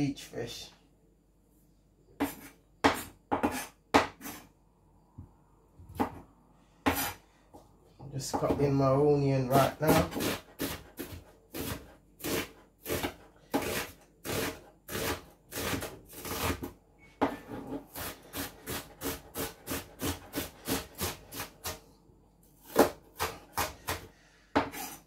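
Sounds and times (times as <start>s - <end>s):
knife chopping onion on plastic board: 2.2s - 4.5s, 5.9s - 7.2s, 8.2s - 8.8s, 9.5s - 21.9s, 22.5s - 25.0s.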